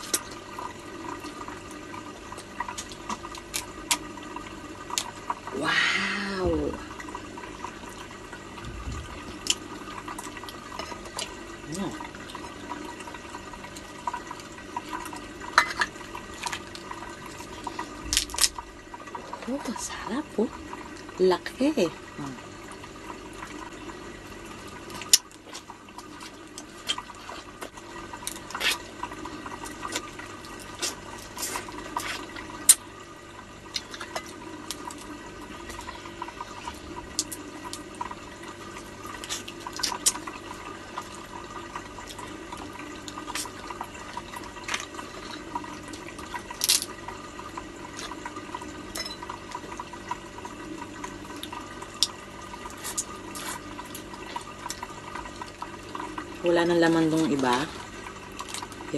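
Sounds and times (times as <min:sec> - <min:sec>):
wet eating sounds: 0:00.0 - 0:21.2, 0:24.4 - 0:58.9
steady hum: 0:00.0 - 0:58.9
crab shells clicking and snapping: 0:02.6 - 0:04.1, 0:18.0 - 0:18.6, 0:46.5 - 0:47.0.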